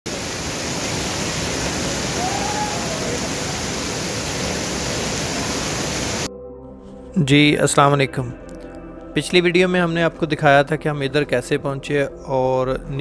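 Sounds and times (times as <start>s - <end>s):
waterfall rushing: 0.1s - 6.3s.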